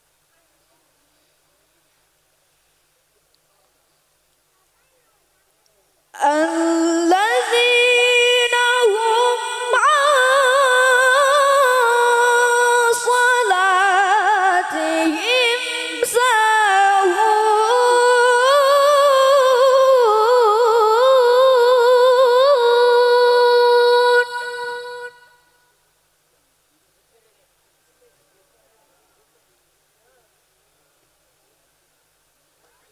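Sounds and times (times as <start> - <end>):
girl reciting melodically: 6.2 - 25.5.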